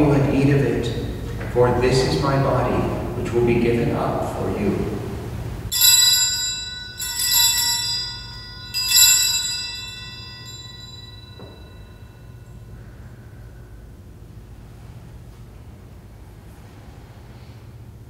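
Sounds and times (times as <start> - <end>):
altar bells ringing: 5.7 - 13.0.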